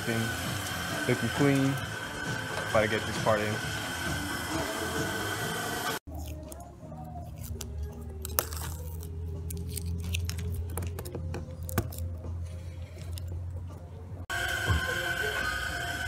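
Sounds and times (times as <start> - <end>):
masking paper cut and torn: 6.1 - 13.4.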